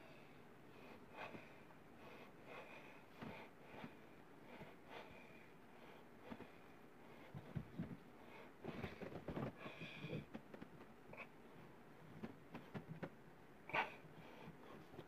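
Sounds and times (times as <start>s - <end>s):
man breathing heavily through nose: 0.0s - 10.3s.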